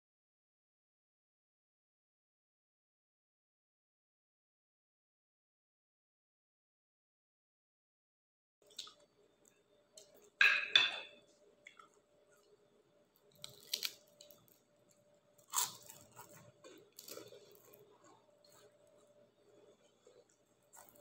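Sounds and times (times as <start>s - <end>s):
crunching and chewing food: 8.6s - 10.4s, 11.1s - 21.0s
faint steady hum: 8.6s - 21.0s.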